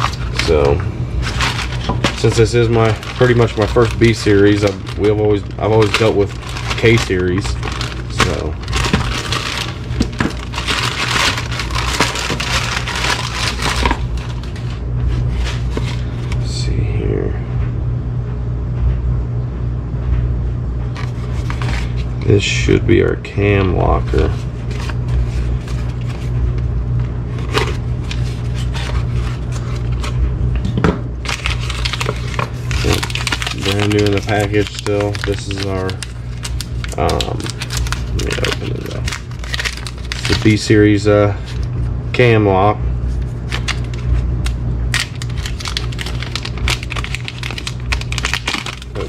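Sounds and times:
plastic bag crinkling: 0.0 - 16.4, 27.3 - 30.2, 31.2 - 41.7, 43.1 - 49.0
steady low hum: 0.0 - 49.0.

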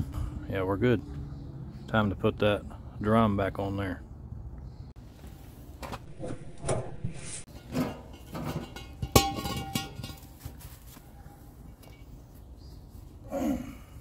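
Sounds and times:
steel brake drum clanking: 7.5 - 10.4.

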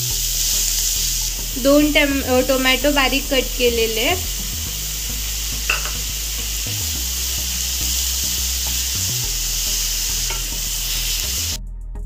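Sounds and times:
vegetables sizzling in hot oil: 0.0 - 11.6.

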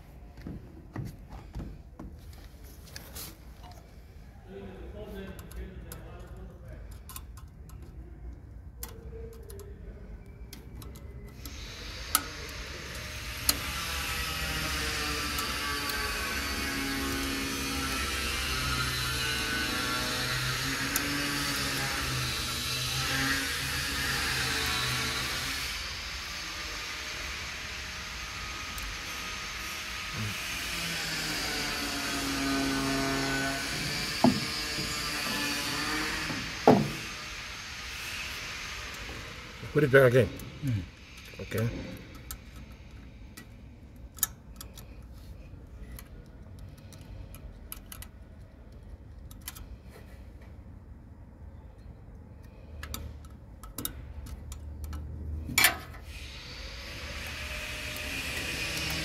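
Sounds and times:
screwdriver metallic clicks: 52.4 - 55.8.

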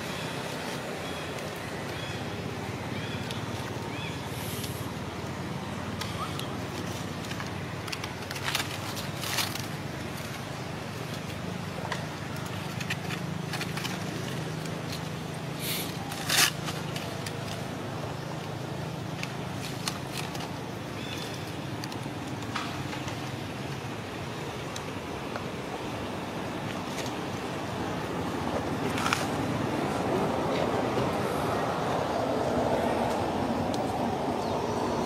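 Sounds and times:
sharp crackles and scrapes: 5.9 - 23.9, 28.7 - 30.7.

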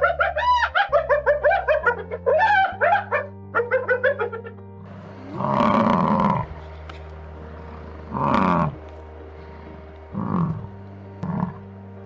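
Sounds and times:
low steady hum: 4.6 - 12.0
cow mooing: 4.9 - 11.9.

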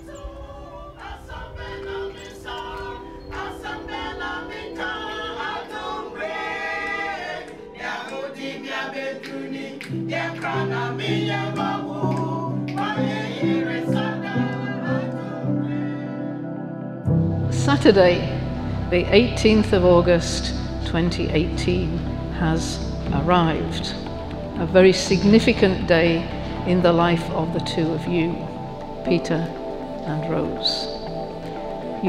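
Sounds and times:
choir singing: 0.0 - 32.0
sustained low notes: 17.1 - 32.0.

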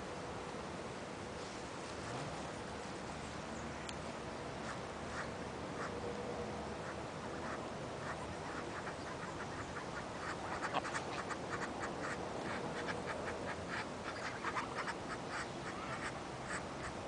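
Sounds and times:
geese calling: 4.6 - 6.0, 6.8 - 17.0.

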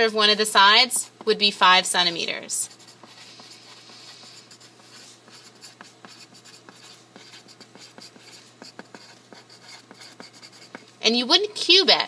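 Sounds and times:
pencil scratching on paper: 2.0 - 10.9.

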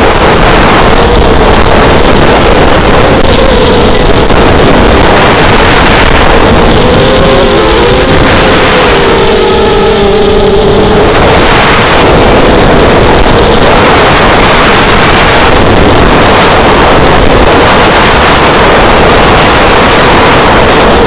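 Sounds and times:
drone motors buzzing: 0.0 - 21.0
wind rushing: 0.0 - 21.0.

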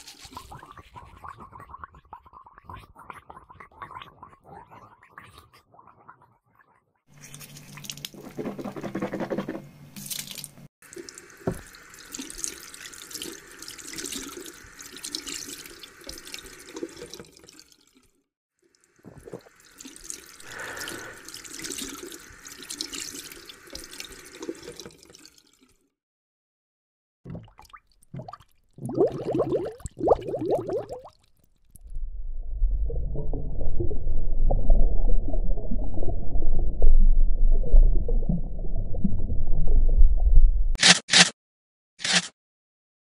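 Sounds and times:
water running and splashing: 10.0 - 18.1, 18.8 - 25.7.

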